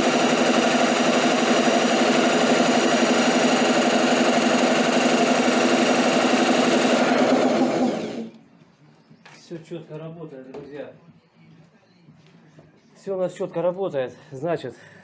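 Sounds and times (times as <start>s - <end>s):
electric drill spinning compressor: 0.0s - 8.4s.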